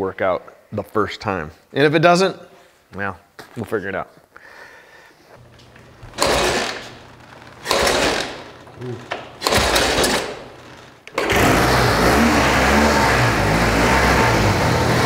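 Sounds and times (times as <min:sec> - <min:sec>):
motorcycle engine starting: 0:05.4 - 0:15.0.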